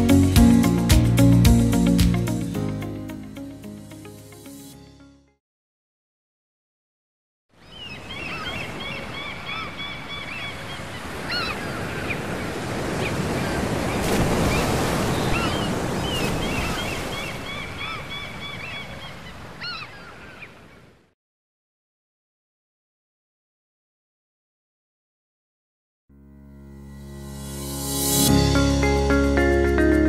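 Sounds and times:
seagulls calling: 7.6 - 20.8
sea surf washing in: 10.4 - 18.7.

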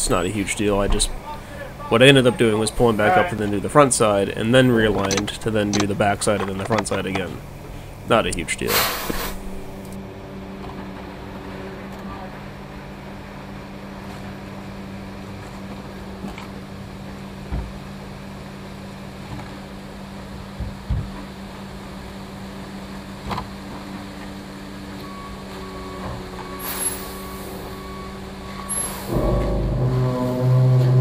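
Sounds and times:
diesel truck engine idling: 0.0 - 10.0
faint higher tone: 27.7 - 31.0.

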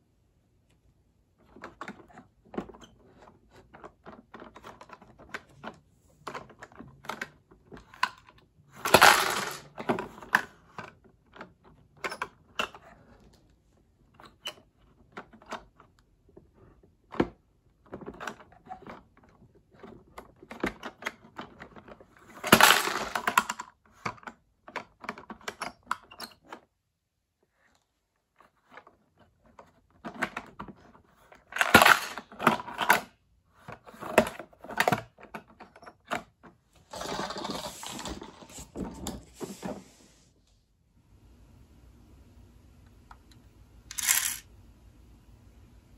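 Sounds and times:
plastic bins clattering: 8.8 - 10.3, 22.3 - 23.4, 31.5 - 33.1, 36.3 - 39.9.

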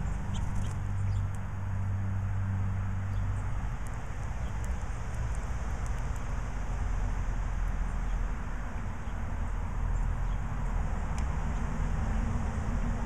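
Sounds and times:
small birds chirping: 0.0 - 1.5, 2.8 - 6.4, 7.6 - 12.4
road traffic rumble: 0.0 - 13.0
vehicle engine hum: 0.0 - 13.0.

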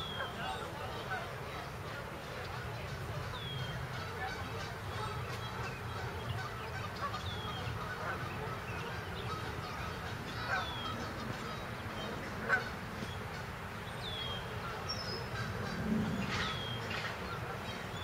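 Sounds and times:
geese honking: 0.0 - 13.5, 14.2 - 18.0
low background noise: 0.0 - 18.0.

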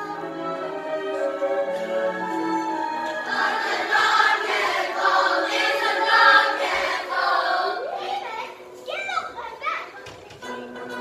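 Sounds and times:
children singing together: 3.1 - 8.0.

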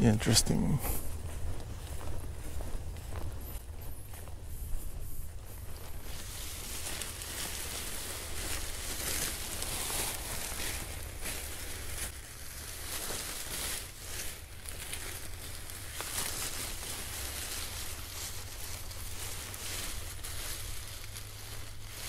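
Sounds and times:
steady low rumble: 0.0 - 21.9
nylon fabric rustling and crinkling: 6.0 - 22.0.

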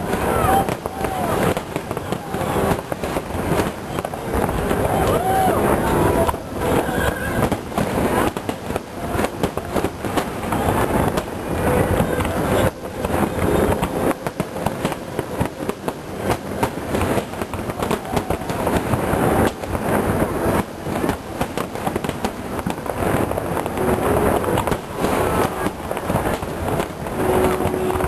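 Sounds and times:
fireworks booming and crackling: 0.0 - 28.0.

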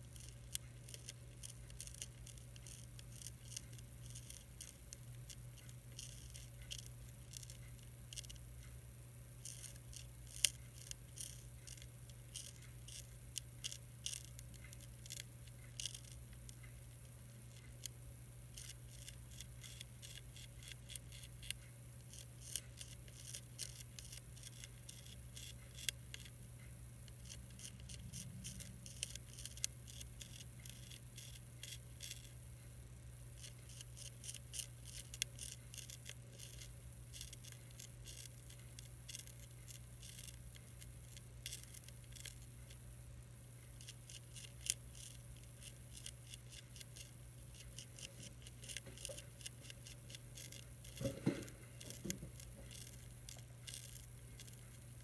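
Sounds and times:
caterpillar chewing leaf clicks: 0.0 - 8.5, 9.4 - 26.4, 27.0 - 32.4, 33.4 - 42.8, 43.7 - 55.0
steady low hum: 0.0 - 55.0.

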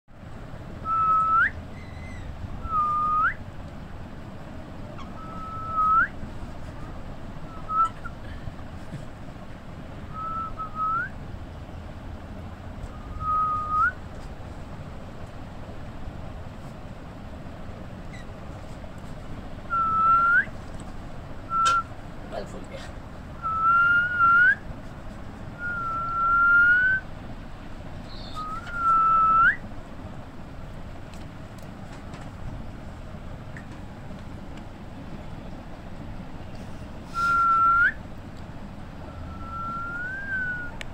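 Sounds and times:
whistled notes: 0.8 - 3.4, 5.1 - 6.2, 10.1 - 11.2, 12.9 - 14.0, 19.7 - 20.5, 21.5 - 21.9, 23.4 - 24.6, 25.6 - 27.0, 28.1 - 29.6, 37.2 - 38.0, 39.1 - 40.8.

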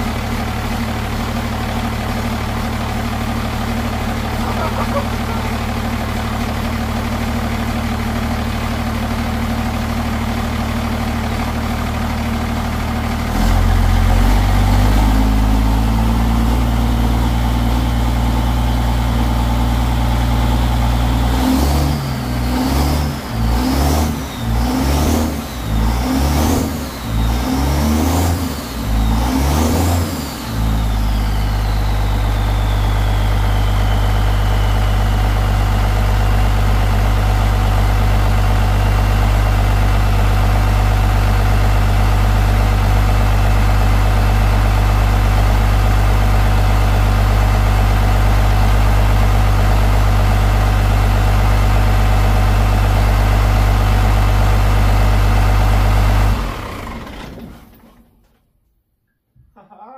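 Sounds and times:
diesel engine idling and revving: 0.0 - 58.1
turbo whistle: 28.7 - 35.4.

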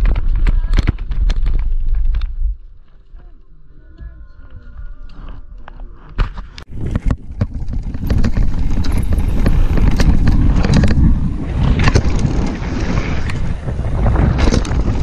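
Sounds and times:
bike rattles and knocks: 6.2 - 15.0
wind rushing on microphone: 6.6 - 15.0
tyre rumble on gravel: 6.7 - 13.2.

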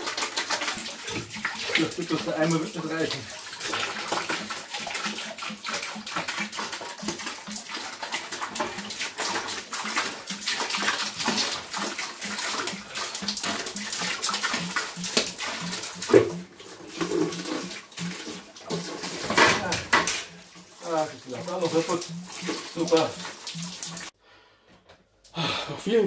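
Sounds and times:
water pouring into a bucket: 0.0 - 24.2.

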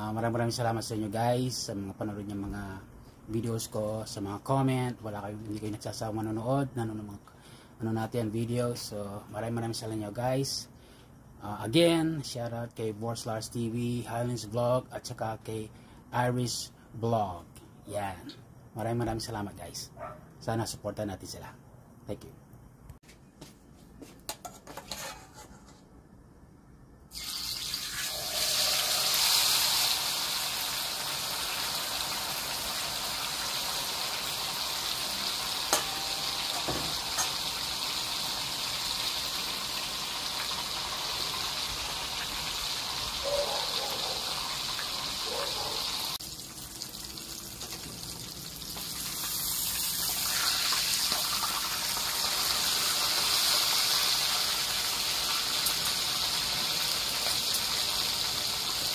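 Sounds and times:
fish sizzling in hot oil: 27.1 - 58.9.

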